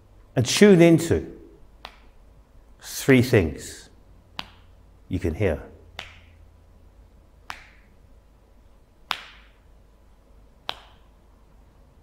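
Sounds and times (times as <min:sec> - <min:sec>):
sharp taps with echo: 0:01.8 - 0:02.2, 0:04.3 - 0:04.8, 0:05.9 - 0:06.4, 0:09.0 - 0:09.7, 0:10.6 - 0:11.2.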